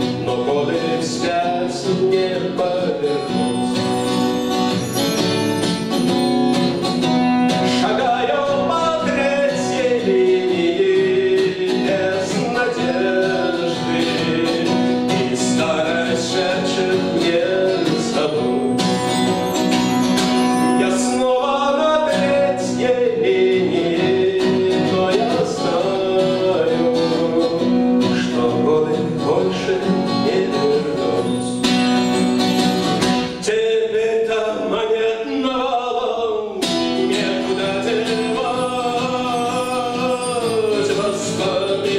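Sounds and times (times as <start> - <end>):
man singing: 0.0 - 5.1, 7.5 - 31.8, 33.1 - 41.9
strummed acoustic guitar: 0.0 - 41.9.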